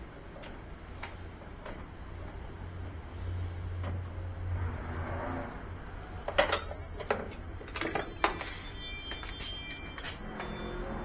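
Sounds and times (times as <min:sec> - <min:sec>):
steady low hum: 0:00.0 - 0:11.0
metal tools clinking on engine: 0:06.3 - 0:11.0.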